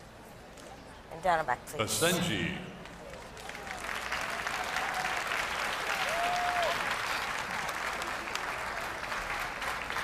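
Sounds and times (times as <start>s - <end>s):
audience applauding: 2.9s - 10.0s.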